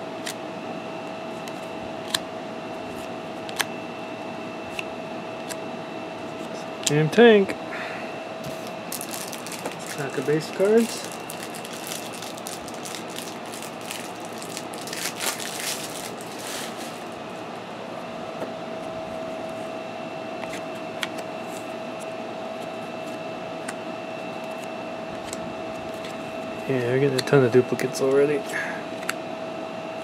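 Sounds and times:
room hum with high whine: 0.0s - 30.0s
cards and packaging rustling: 8.6s - 17.2s.

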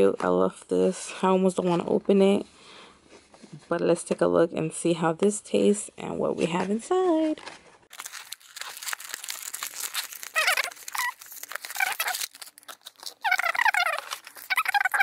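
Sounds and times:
plastic wrapper crinkling and tearing: 7.9s - 15.0s
short high squeaks: 9.8s - 15.0s.

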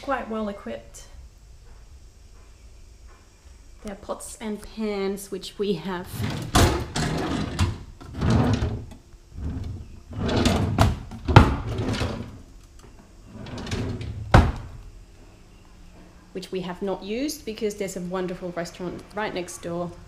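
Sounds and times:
drawers sliding with scraping rumble: 6.0s - 12.5s, 13.2s - 14.8s
drawer closing knock: 13.6s - 14.7s.

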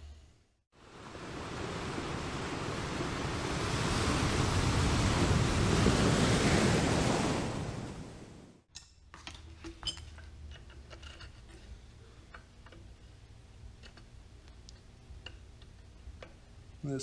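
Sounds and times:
wind noise: 0.9s - 8.6s
hand tools clicking and tapping: 8.7s - 16.5s.

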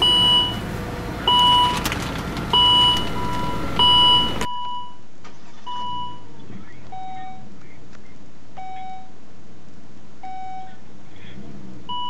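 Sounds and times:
door warning chime beeping: 0.0s - 0.7s, 1.3s - 1.9s, 2.5s - 5.0s
car engine idling: 0.0s - 4.5s.

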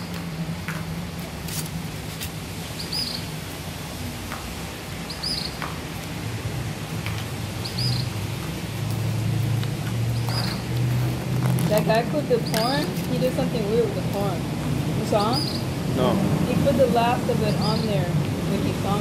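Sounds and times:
bird chirping: 2.8s - 3.3s, 5.1s - 5.6s, 7.6s - 8.2s, 10.2s - 10.7s, 12.3s - 12.9s, 15.1s - 15.8s, 17.4s - 18.0s.

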